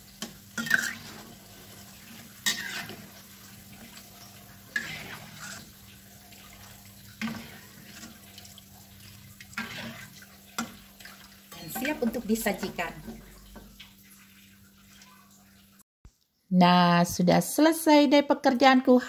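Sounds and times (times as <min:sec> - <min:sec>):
oil sizzling faintly: 0:00.0 - 0:16.4
utensils scraping and knocking a wok: 0:00.2 - 0:03.2, 0:04.7 - 0:05.8, 0:07.2 - 0:08.4, 0:09.5 - 0:10.9.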